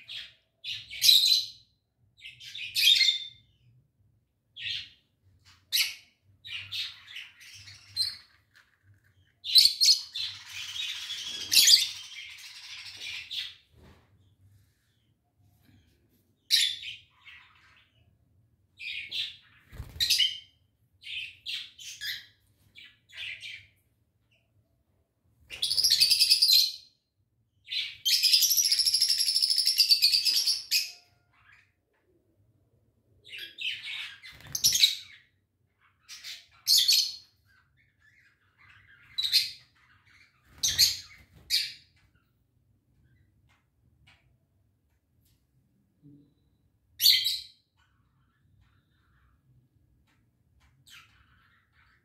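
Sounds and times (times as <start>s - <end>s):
lovebirds chirping: 4.6s - 18.1s.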